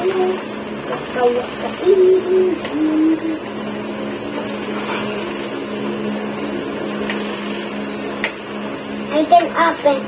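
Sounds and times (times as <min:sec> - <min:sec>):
small motor humming: 0:00.0 - 0:10.0.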